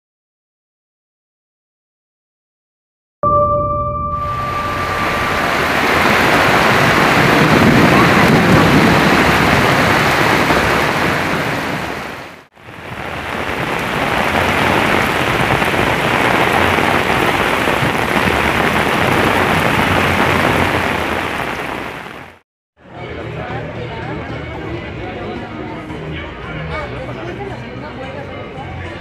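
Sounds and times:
heavy rain on water and paving: 4.4s - 22.4s.

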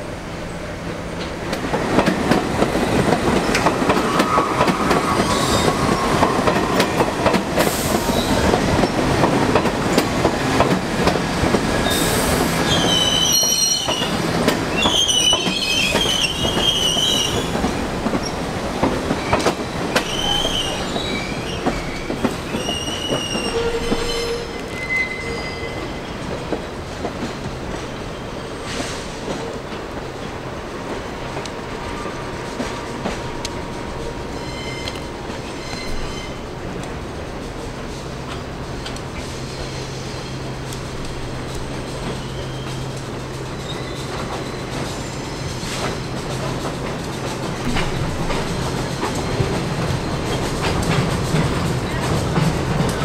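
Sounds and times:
train wheels rumbling on rails: 0.0s - 53.0s
train wheels squealing: 3.4s - 9.0s, 11.8s - 18.4s, 19.1s - 26.3s, 34.2s - 36.4s, 42.0s - 43.0s, 43.6s - 45.9s.

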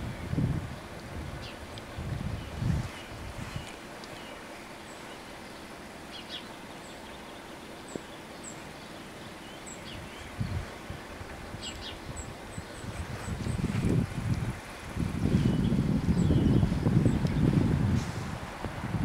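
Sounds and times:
wind gust on microphone: 0.0s - 3.9s, 9.8s - 19.0s
outdoor background noise: 0.0s - 19.0s
small birds chirping: 1.4s - 17.8s.

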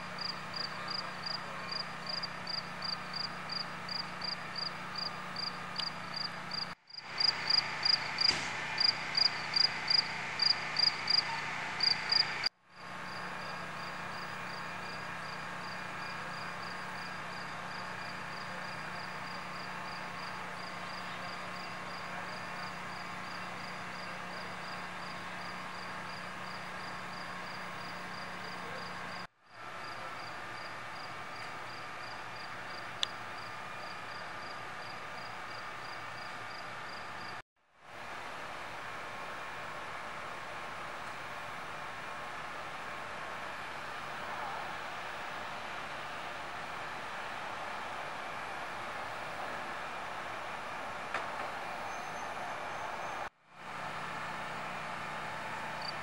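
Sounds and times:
steady low hum: 0.0s - 23.6s
crickets chirping: 0.2s - 13.2s.

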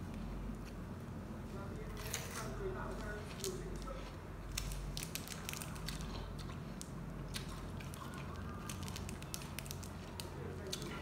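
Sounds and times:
steady low hum: 0.0s - 11.0s
plastic wrapper crackling: 2.0s - 6.2s, 6.8s - 11.0s
person chewing food: 3.2s - 11.0s.

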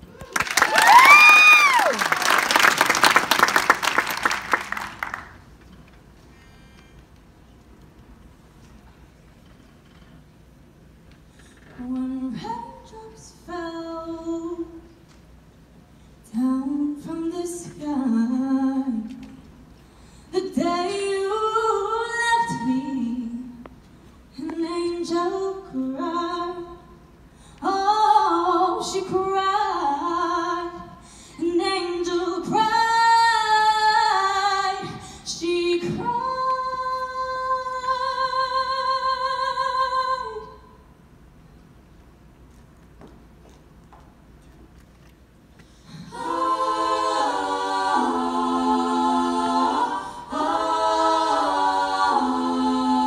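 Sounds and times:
woman singing a cappella: 11.7s - 14.9s, 16.3s - 19.5s, 20.3s - 23.7s, 24.4s - 27.0s, 27.6s - 40.8s.

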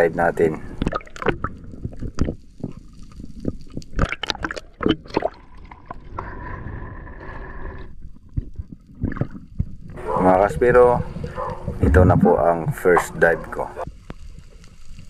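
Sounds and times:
sea water sloshing and gurgling: 0.4s - 6.8s, 8.2s - 10.0s
sharp water splashes: 3.9s - 5.9s.

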